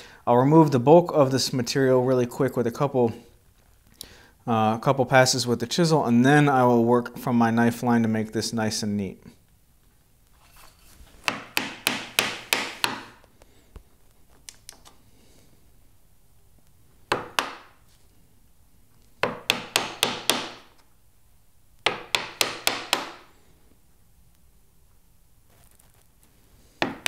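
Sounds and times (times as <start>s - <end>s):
mallet striking chisel: 11.2s - 13.2s, 17.1s - 17.8s, 19.2s - 20.7s, 21.8s - 23.3s.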